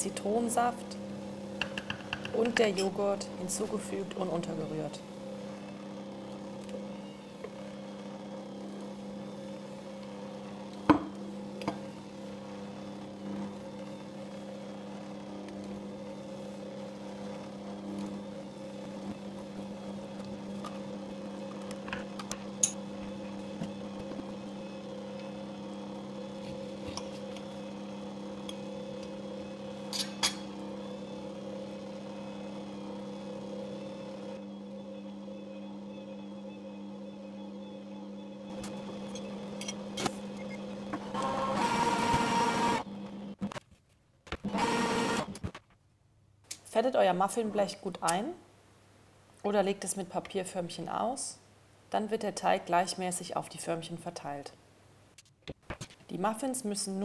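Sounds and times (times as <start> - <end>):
electric stand mixer humming: 0.0 - 43.4, 44.5 - 45.3.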